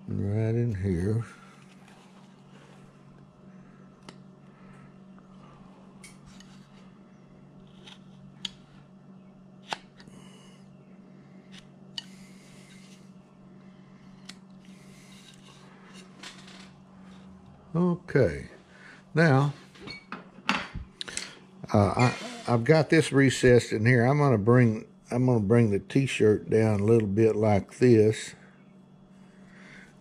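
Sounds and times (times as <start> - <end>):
knife scraping wood: 7.6 - 8.3, 14.2 - 16.2.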